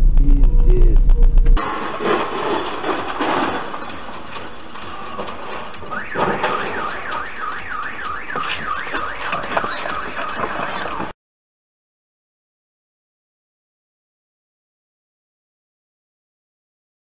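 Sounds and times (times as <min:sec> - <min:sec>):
high ticking: 0:00.0 - 0:11.1
street noise: 0:00.0 - 0:11.1
car alarm wailing: 0:05.7 - 0:11.1.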